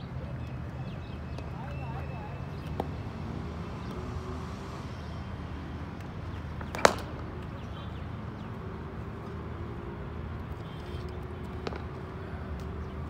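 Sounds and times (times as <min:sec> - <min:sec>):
cricket bat hitting ball: 0:06.6 - 0:07.2.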